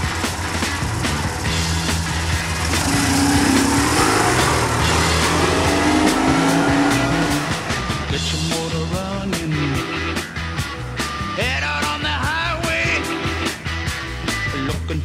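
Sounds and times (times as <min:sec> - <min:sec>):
motorcycle engine revving: 0:00.0 - 0:11.6
rock music: 0:00.0 - 0:15.0.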